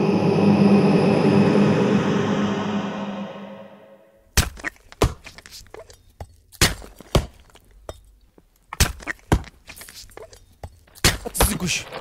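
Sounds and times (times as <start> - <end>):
background music: 0.0 - 4.3.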